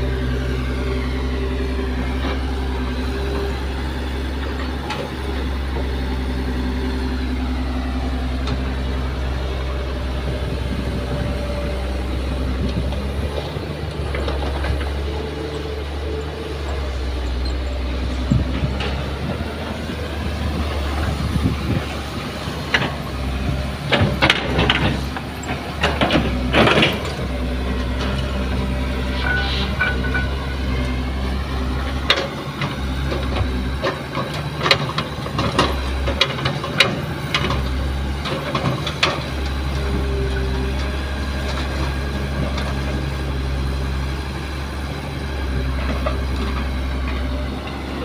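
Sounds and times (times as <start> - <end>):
excavator diesel engine running: 0.0 - 48.0
metal clanks and rattles: 23.8 - 28.2, 29.1 - 30.5.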